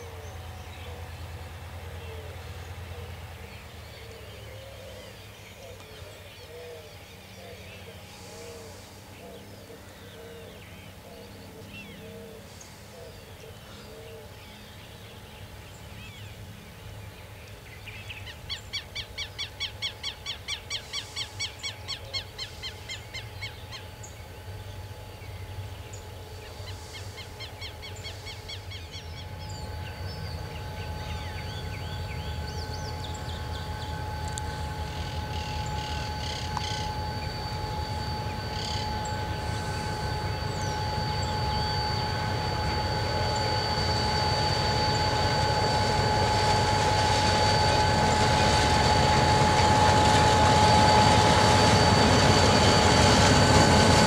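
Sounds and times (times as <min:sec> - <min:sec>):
diesel locomotive rumbling: 0:00.0 - 0:54.0
loud rapid bird trill: 0:17.8 - 0:54.0.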